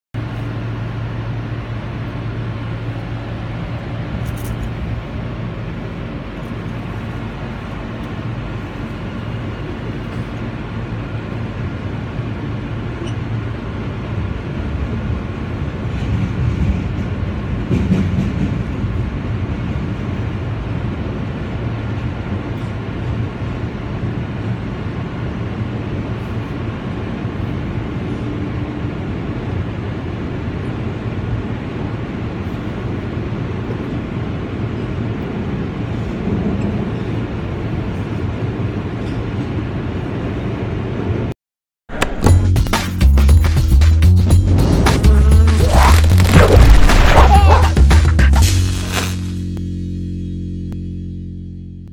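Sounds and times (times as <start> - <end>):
subway train rumble: 0.2 - 41.4, 42.3 - 49.6
train clatter: 14.9 - 21.1.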